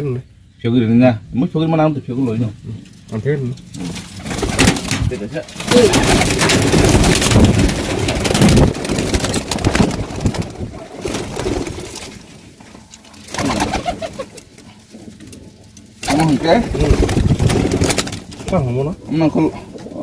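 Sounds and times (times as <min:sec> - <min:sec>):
pigeons cooing: 0:03.6 - 0:20.0
pigeon wings flapping: 0:03.8 - 0:12.3, 0:13.2 - 0:14.6, 0:16.0 - 0:18.7.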